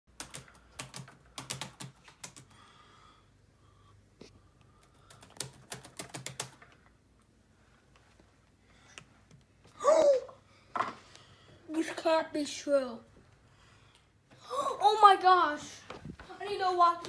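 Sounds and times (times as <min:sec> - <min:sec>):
laptop keyboard typing: 0:00.1 - 0:02.6, 0:04.7 - 0:06.9.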